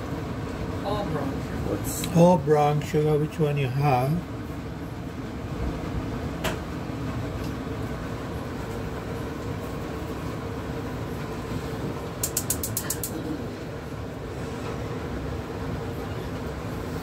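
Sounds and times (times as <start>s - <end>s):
gas burner rumbling: 0.0s - 17.0s
stove igniter clicks: 12.2s - 13.2s.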